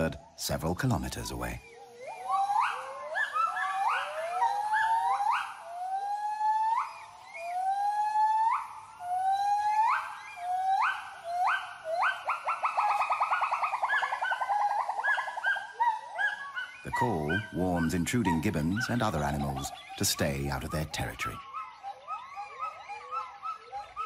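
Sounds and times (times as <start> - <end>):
gibbons hooting: 0.0 - 24.0.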